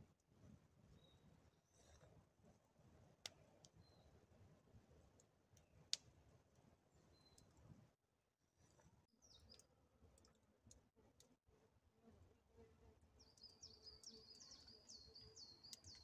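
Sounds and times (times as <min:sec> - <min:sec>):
songbird chirping: 0:13.2 - 0:16.0
faint clicks: 0:15.6 - 0:16.0.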